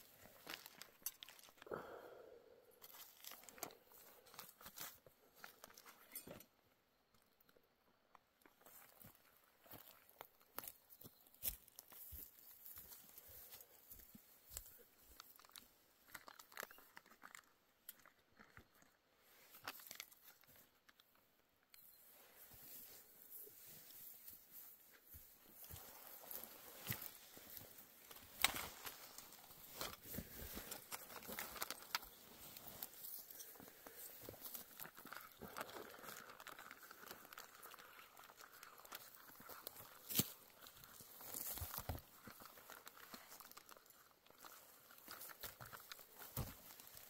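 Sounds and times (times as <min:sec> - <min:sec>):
crinkling and rustling: 0:00.0 - 0:01.7, 0:02.8 - 0:06.6, 0:08.0 - 0:47.0
faint crunching clicks: 0:00.2 - 0:01.8, 0:11.4 - 0:21.9, 0:24.9 - 0:47.0.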